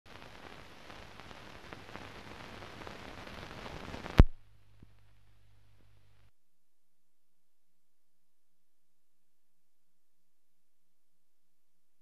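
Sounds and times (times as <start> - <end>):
film hiss and crackle: 0.1 - 6.3
sharp pop: 4.0 - 4.4
faint low hum: 4.1 - 12.0.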